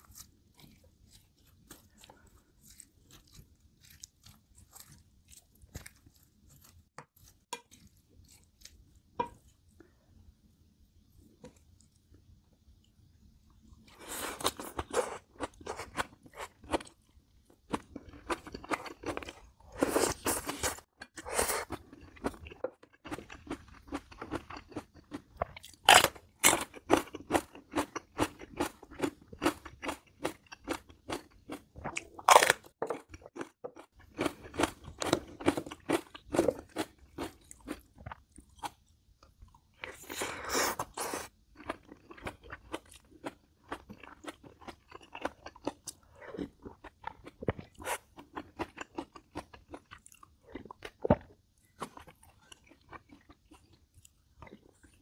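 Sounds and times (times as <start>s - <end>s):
wet crunchy chewing: 0.0s - 9.3s, 17.7s - 38.8s, 39.5s - 55.0s.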